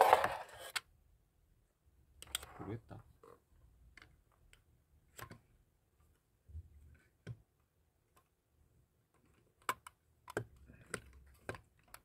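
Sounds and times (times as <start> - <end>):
faint clicks and taps: 9.1 - 12.0.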